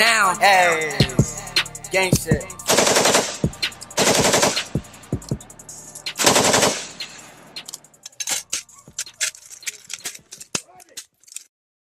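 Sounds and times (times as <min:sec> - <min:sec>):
machine-gun fire: 0:02.7 - 0:04.8, 0:06.2 - 0:07.2.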